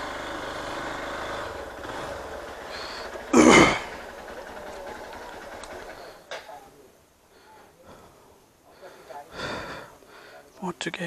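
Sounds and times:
motorcycle engine running: 0.0 - 6.3.

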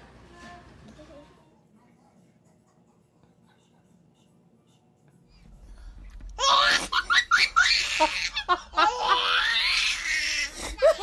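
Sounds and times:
baby laughing: 6.4 - 11.0.

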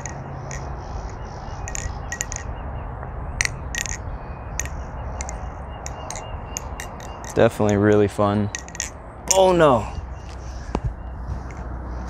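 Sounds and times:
balisong metallic clicks: 0.0 - 2.5, 3.4 - 9.5.

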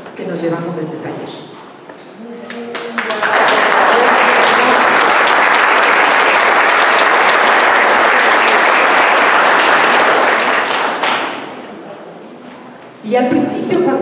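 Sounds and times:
audience applauding: 2.5 - 11.6.

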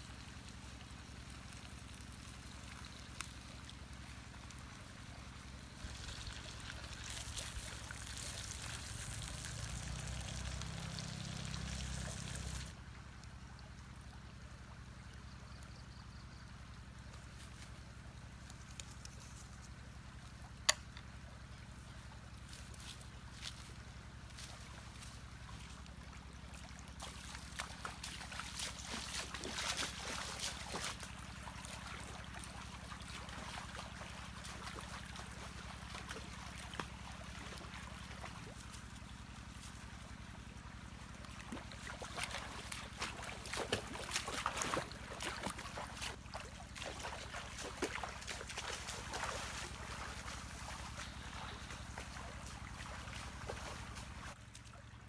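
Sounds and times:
shallow stream running: 0.0 - 55.0
splashing of wading feet: 22.4 - 54.9.

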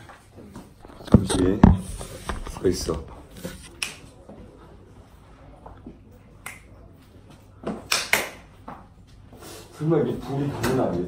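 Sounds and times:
hands clapping: 6.4 - 6.7, 7.8 - 8.5.

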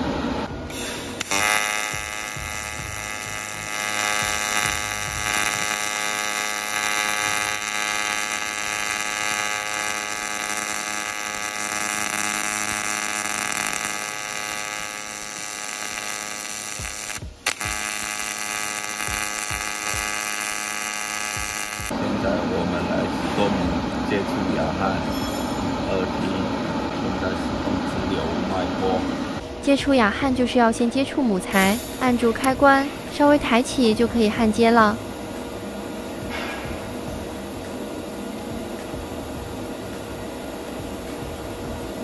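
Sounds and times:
welding arc buzzing: 0.0 - 22.0.

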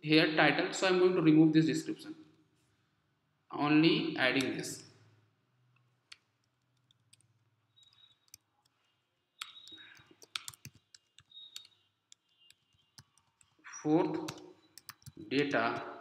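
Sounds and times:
computer keyboard typing: 6.1 - 15.9.

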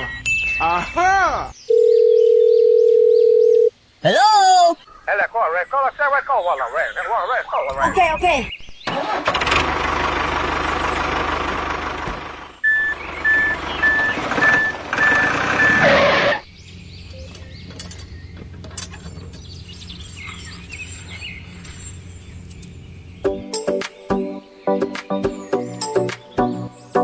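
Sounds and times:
reversing alarm beeping: 0.0 - 1.0, 12.6 - 16.4
loud vehicle noise: 9.1 - 23.3.

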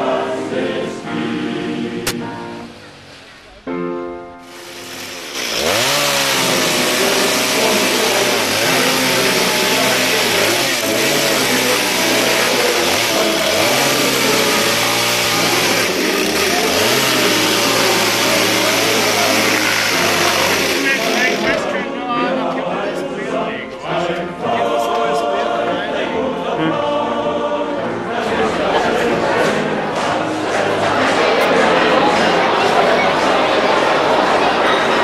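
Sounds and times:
choir singing a chord: 0.0 - 2.9, 5.6 - 35.0
chainsaw cutting wooden boards: 4.4 - 21.7.

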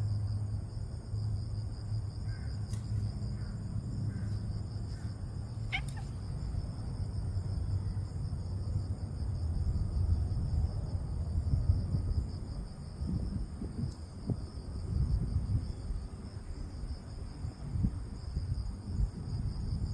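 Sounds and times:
insects chirring: 0.0 - 19.9.

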